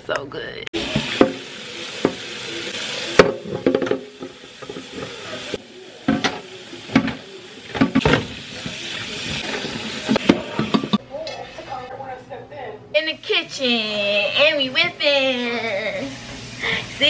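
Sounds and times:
tap water running into sink: 0.8s - 11.0s
pan knocking against metal sink: 0.9s - 2.2s, 3.2s - 5.3s, 6.1s - 11.0s.

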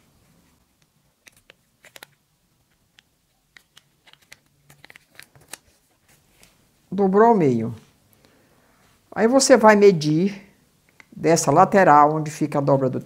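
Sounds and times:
paper crinkling and crackling: 1.2s - 6.6s.

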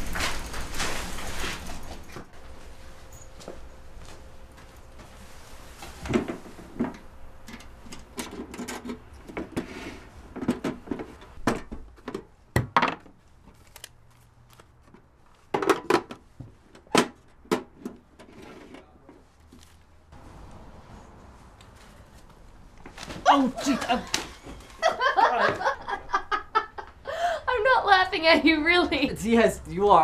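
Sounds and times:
papers rustling: 18.5s - 20.0s.

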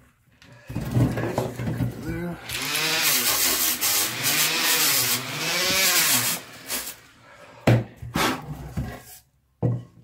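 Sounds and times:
rotary sanding pad on wood: 2.5s - 7.0s.

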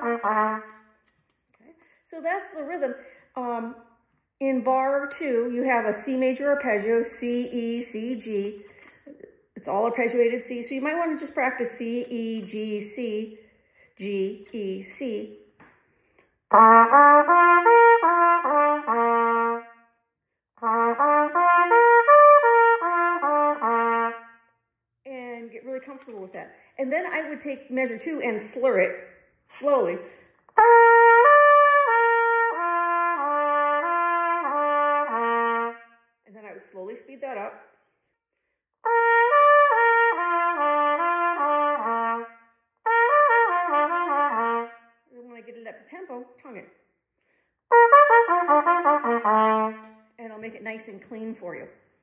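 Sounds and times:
trumpet playing an arpeggio: 0.0s - 0.9s, 16.5s - 19.9s, 20.6s - 24.4s, 30.6s - 36.0s, 38.8s - 45.0s, 47.7s - 50.0s.

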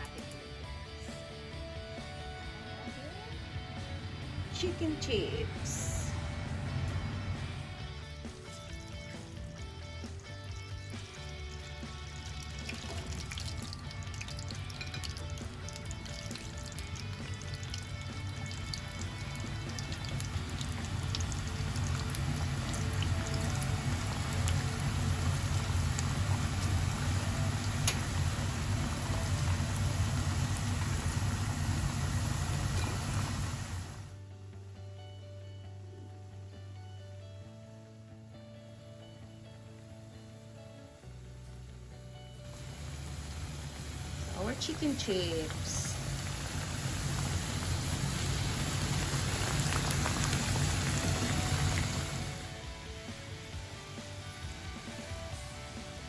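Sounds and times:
chicken sizzling in hot oil: 6.7s - 34.2s, 42.4s - 56.0s.

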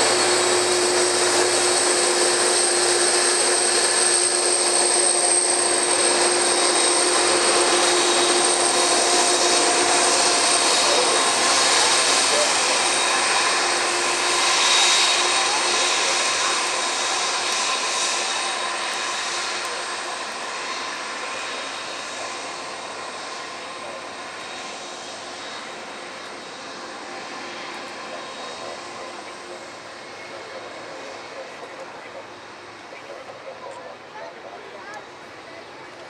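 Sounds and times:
jet engines rumbling with whine: 0.0s - 36.0s.

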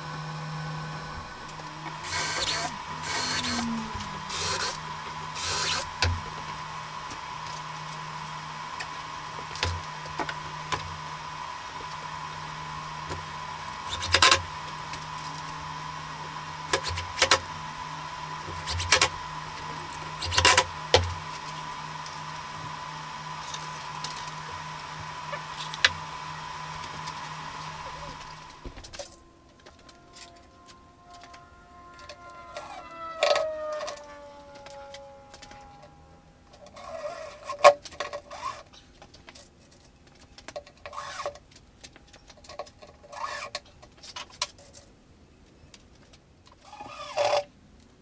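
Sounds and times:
steady hum: 0.0s - 38.1s
cordless drill driving screws: 0.6s - 11.0s, 13.0s - 15.7s, 16.6s - 22.8s.

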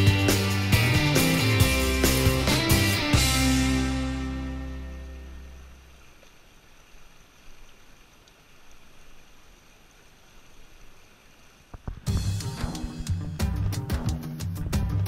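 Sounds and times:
rock music with guitar and drums: 0.0s - 5.4s, 12.0s - 15.0s
stream running over rocks: 3.9s - 13.6s.

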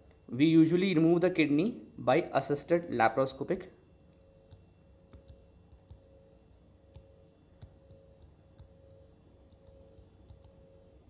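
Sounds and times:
faint steady hum: 0.0s - 11.0s
stylus tapping on tablet screen: 4.4s - 10.9s.

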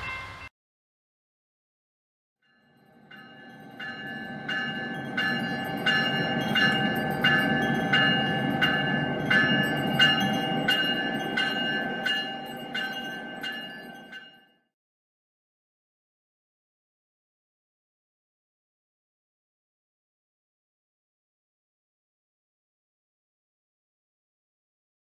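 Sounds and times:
locomotive bell ringing: 0.0s - 0.5s, 2.5s - 14.7s
train rumble: 0.0s - 0.5s, 3.3s - 13.8s.

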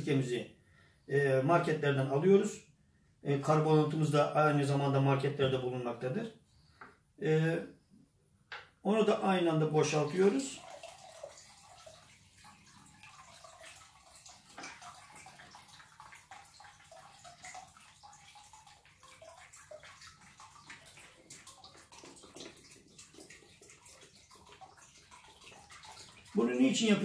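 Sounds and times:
liquid pouring and trickling: 9.7s - 27.0s.

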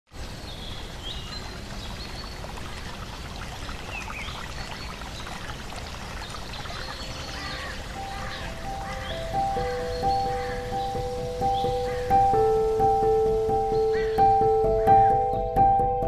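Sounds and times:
trickling running water: 0.1s - 15.1s
held musical notes: 7.8s - 16.0s.

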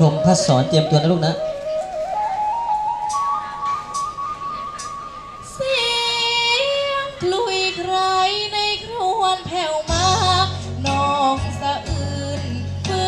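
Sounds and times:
backing track with bass line: 0.0s - 5.9s, 9.9s - 13.0s
girl singing into microphone: 5.4s - 13.0s.

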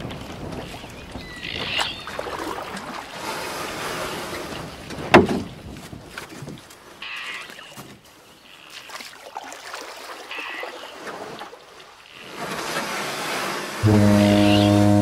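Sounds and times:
wind noise: 0.0s - 2.4s
water noise: 0.0s - 15.0s
short high gliding sound: 13.8s - 15.0s.

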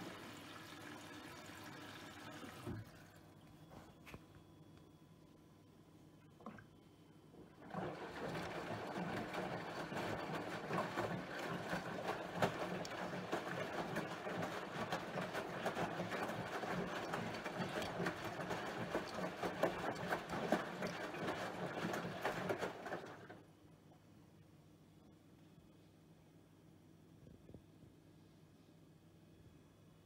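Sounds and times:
water sloshing and splashing: 6.3s - 6.8s, 7.5s - 23.4s
washing machine drum turning: 7.6s - 23.4s.

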